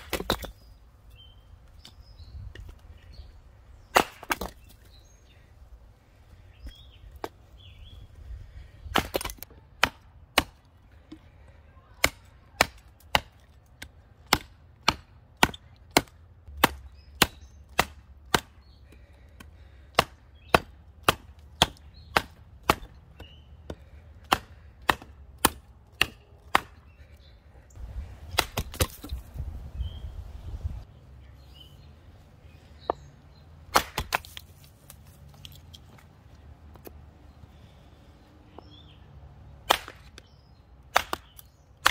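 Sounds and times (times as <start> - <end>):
hatchet chopping wood: 0.0 - 0.6, 3.8 - 4.8, 8.9 - 11.2, 11.9 - 27.0, 28.2 - 29.2, 33.7 - 34.5, 39.6 - 41.9.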